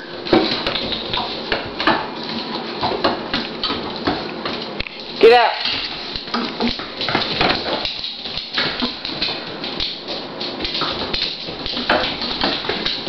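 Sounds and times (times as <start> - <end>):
dog claws clicking on hard floor: 0.3 - 13.0.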